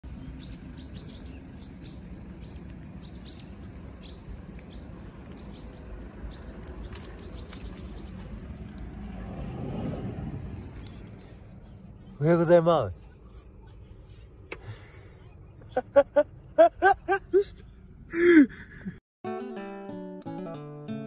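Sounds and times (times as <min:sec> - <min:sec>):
small birds chirping: 0:00.1 - 0:09.5, 0:10.6 - 0:16.6, 0:17.3 - 0:18.4
low background rumble: 0:00.1 - 0:19.0.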